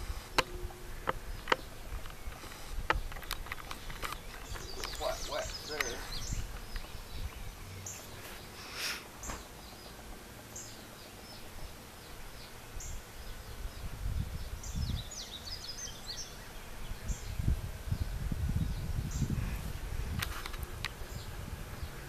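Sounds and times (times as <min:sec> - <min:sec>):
birds chirping: 0:00.0 - 0:22.0
brief scrape: 0:08.2 - 0:09.1
low rumble on microphone: 0:16.8 - 0:22.0.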